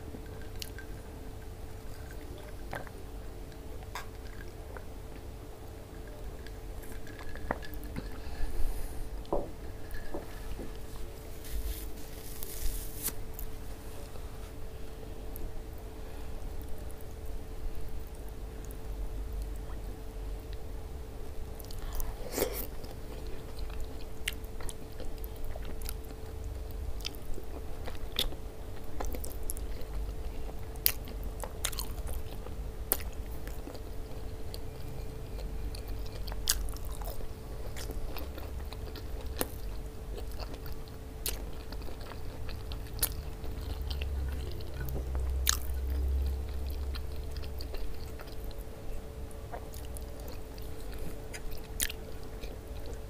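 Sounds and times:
faint steady hum: 0.0s - 53.0s
close-up chewing and biting: 0.2s - 5.3s, 27.0s - 48.6s, 49.5s - 53.0s.

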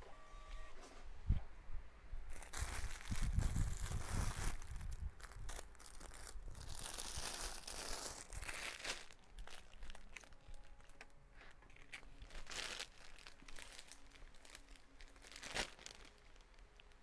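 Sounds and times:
plastic bags crinkling: 2.3s - 17.0s.

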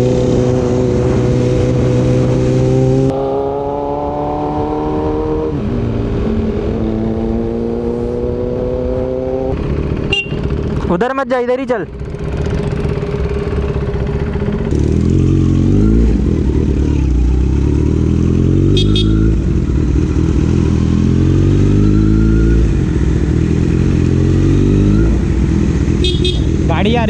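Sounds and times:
motorcycle engine accelerating: 0.0s - 11.2s, 11.9s - 27.0s.

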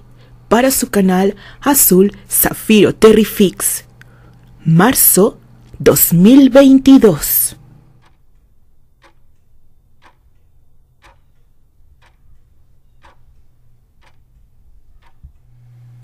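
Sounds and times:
low steady hum: 0.0s - 16.0s
faint regular ticking: 7.6s - 15.7s.

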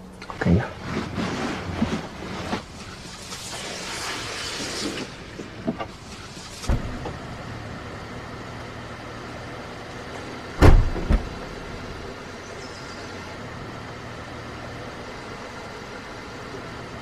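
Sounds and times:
steady low hum: 0.0s - 17.0s
car door shutting: 4.8s - 7.3s, 10.2s - 11.9s.

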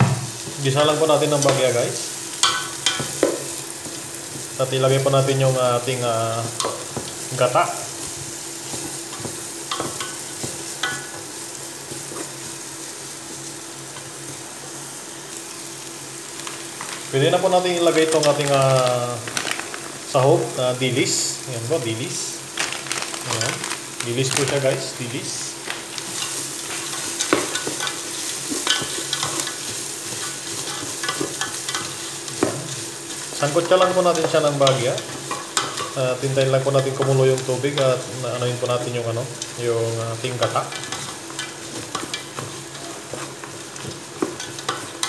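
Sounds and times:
vegetables sizzling in hot oil: 0.0s - 45.0s
wooden spatula scraping a pot: 26.1s - 36.0s, 40.3s - 45.0s.

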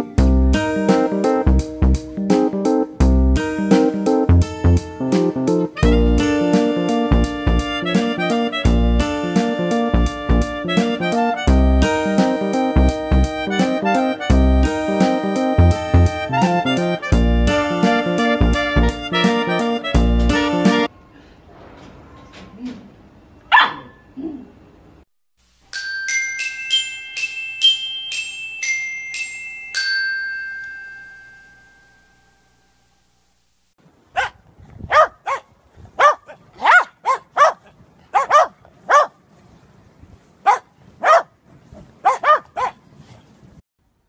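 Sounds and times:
dog barking: 23.5s - 24.1s, 34.2s - 39.2s, 40.4s - 41.3s, 42.0s - 42.8s
ringing bell tune: 25.7s - 33.0s.

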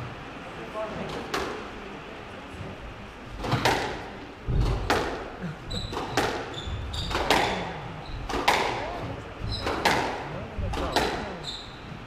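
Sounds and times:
squash ball knocks: 3.4s - 5.3s, 5.9s - 11.3s
shoes squeaking on wooden floor: 5.7s - 10.0s, 10.8s - 12.0s.

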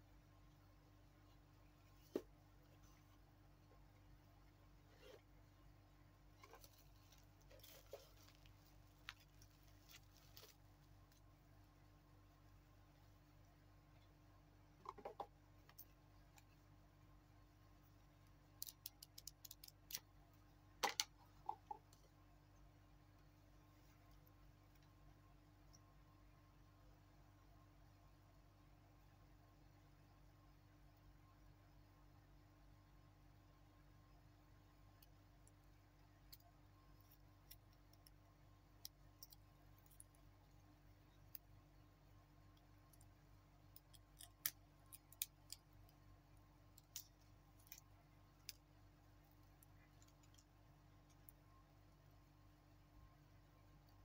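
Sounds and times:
small metallic clicks: 18.6s - 20.1s.

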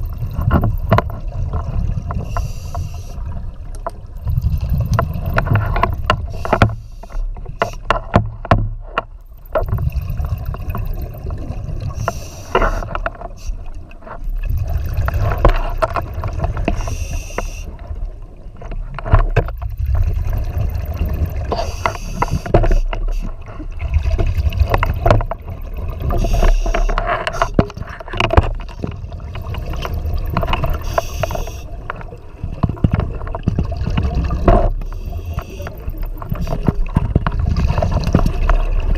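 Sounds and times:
exhaled bubbles rumbling underwater: 0.0s - 38.9s
regulator inhalation hiss: 2.2s - 3.2s, 12.0s - 12.8s, 16.8s - 17.7s, 21.6s - 22.5s, 30.8s - 31.7s.

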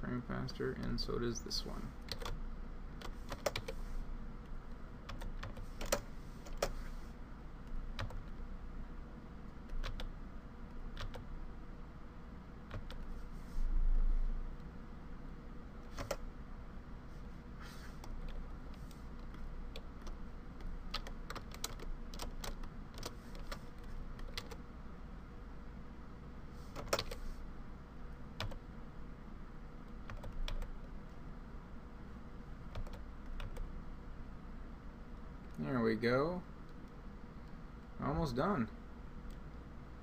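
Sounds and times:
faint low hum: 0.0s - 40.0s
keyboard and mouse clicking: 3.0s - 3.8s, 12.7s - 13.1s, 15.9s - 16.2s, 19.2s - 24.6s.

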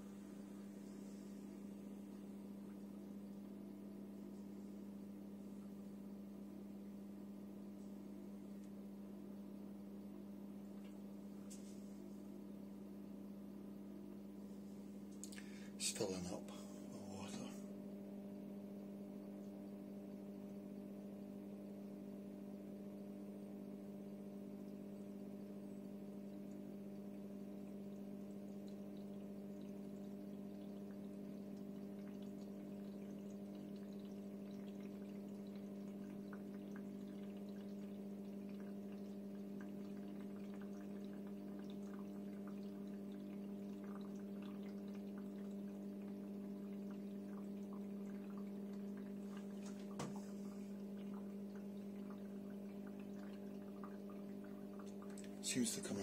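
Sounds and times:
dishwasher humming: 0.0s - 2.1s, 15.2s - 17.6s, 46.4s - 56.0s
water trickling and dripping: 0.0s - 56.0s.

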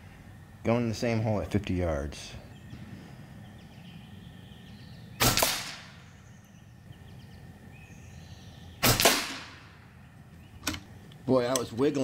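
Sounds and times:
air rifle shots: 5.2s - 6.1s, 8.8s - 9.8s.

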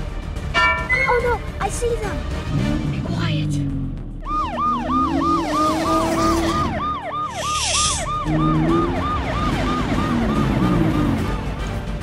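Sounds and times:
police siren yelping: 4.2s - 11.3s.

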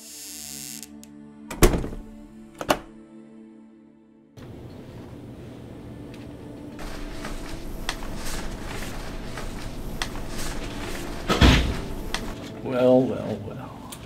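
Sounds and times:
low room hum: 4.4s - 14.0s.

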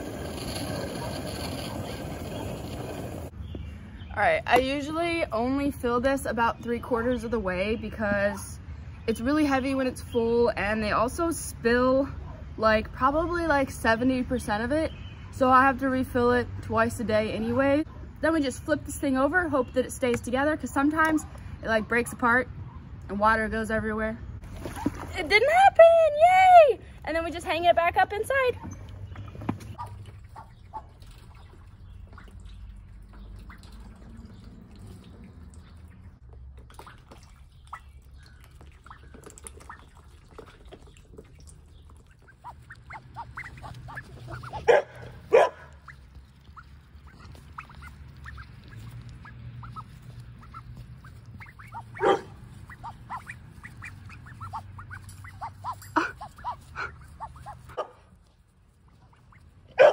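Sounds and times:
young ducks quacking and peeping: 28.5s - 57.8s, 58.6s - 59.6s.

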